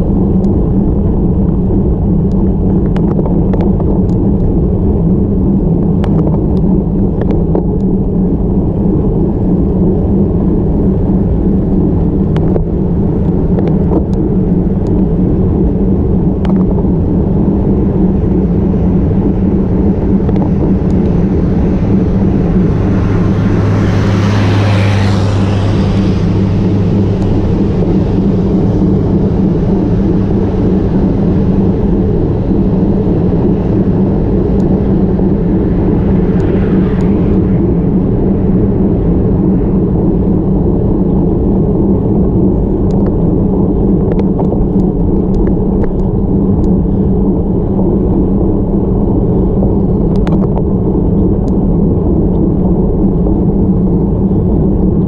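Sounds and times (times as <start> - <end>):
road rumble: 0.0 - 55.0
wind noise: 0.0 - 55.0
truck passing: 17.8 - 40.4.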